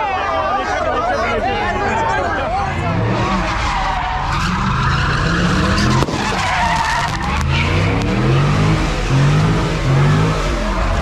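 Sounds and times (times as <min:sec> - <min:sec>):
tires squealing: 0:00.9 - 0:11.0
car engine revving: 0:01.7 - 0:11.0
sharp crack: 0:05.7 - 0:09.0.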